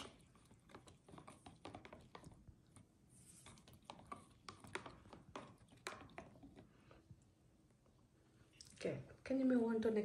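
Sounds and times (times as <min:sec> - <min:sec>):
plastic spoon stirring water: 0:00.0 - 0:07.3.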